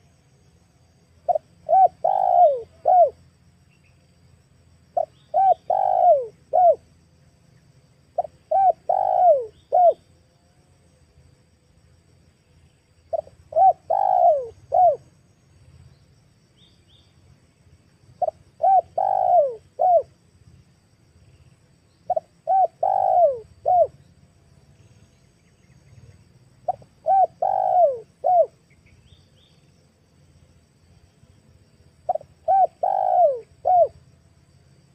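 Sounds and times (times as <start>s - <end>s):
dove cooing: 1.3s - 3.2s, 5.0s - 6.8s, 8.2s - 10.0s, 13.1s - 15.1s, 18.2s - 20.2s, 22.1s - 24.0s, 26.6s - 28.5s, 32.1s - 34.0s.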